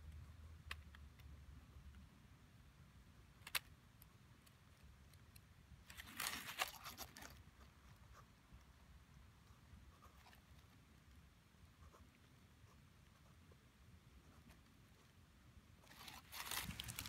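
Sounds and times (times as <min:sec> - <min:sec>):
paper rustling: 0:05.9 - 0:07.4, 0:15.9 - 0:17.0
pen scratching on paper: 0:09.4 - 0:10.5, 0:11.7 - 0:13.6, 0:14.2 - 0:15.1.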